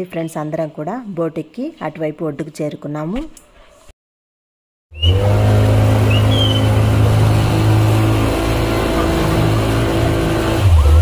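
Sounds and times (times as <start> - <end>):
motorboat engine running: 5.0 - 11.0.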